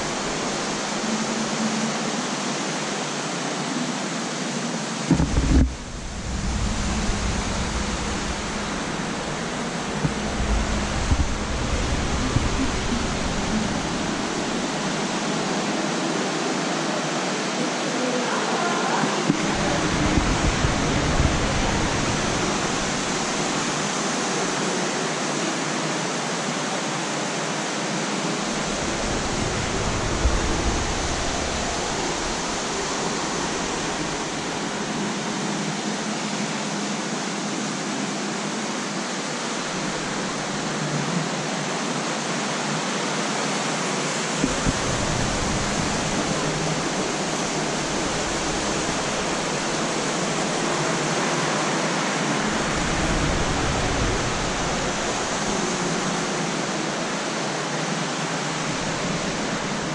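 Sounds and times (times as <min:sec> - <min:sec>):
steady rushing air noise: 0:00.0 - 0:59.9
deep rumble: 0:05.1 - 0:14.9, 0:28.5 - 0:34.4.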